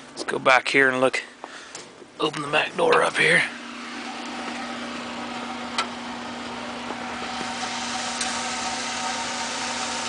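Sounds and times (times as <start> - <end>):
blower humming: 1.4 - 10.0.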